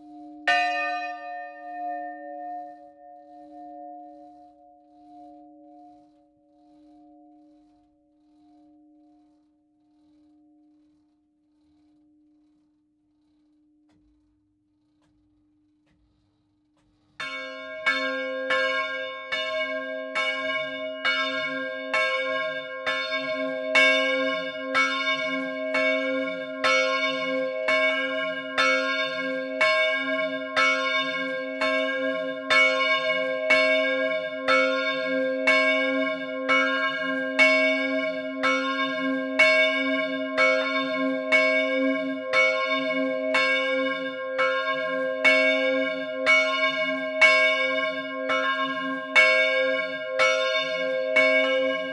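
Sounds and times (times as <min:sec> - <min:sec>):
large bell ringing: 0:00.0 - 0:04.6, 0:17.2 - 0:51.9.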